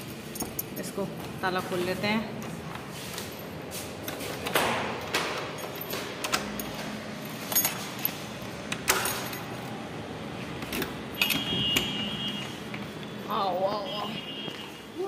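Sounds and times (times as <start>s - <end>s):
lock clicking: 4.4s - 9.5s, 10.6s - 12.0s
keys jangling: 5.4s - 9.7s.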